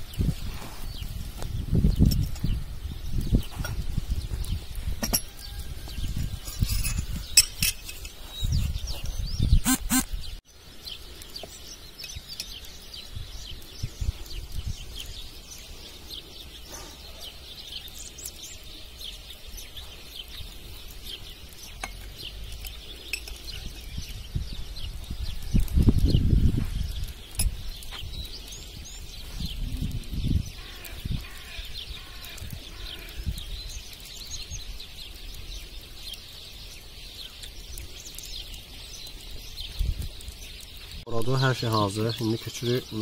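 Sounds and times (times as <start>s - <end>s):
small birds chirping: 0.0s - 43.0s
glass and crockery clinking: 6.4s - 8.1s.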